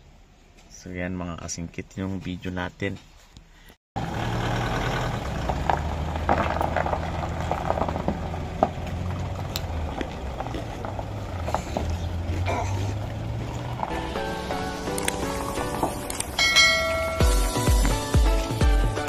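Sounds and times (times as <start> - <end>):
vehicle engine running low: 4.0 - 17.6.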